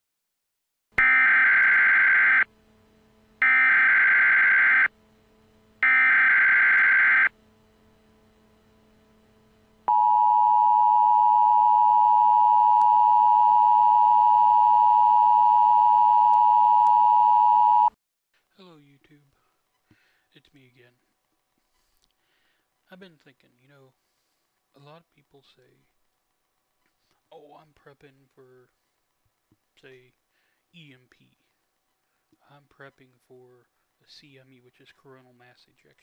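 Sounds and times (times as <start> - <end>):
two-tone attention signal: 9.9 - 17.9.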